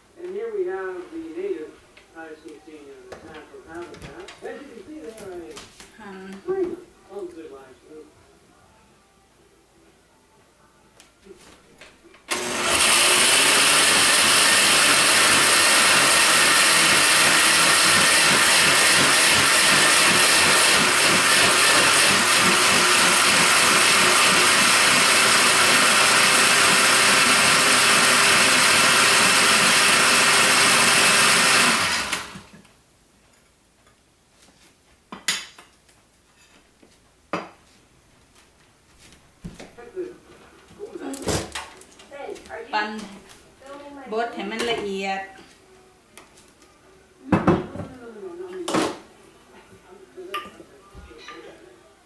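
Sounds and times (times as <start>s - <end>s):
blender grinding vegetables: 12.3s - 32.5s.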